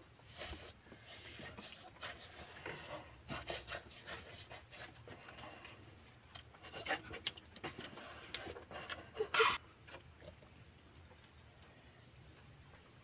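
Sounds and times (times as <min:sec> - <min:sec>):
breathing: 0:00.3 - 0:06.0.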